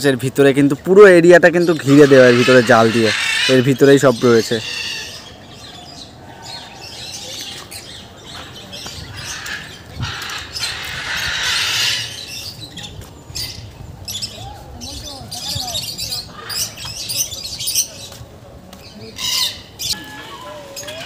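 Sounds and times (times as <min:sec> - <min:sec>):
birds chirping and squawking: 0:00.9 - 0:18.2, 0:18.8 - 0:21.0.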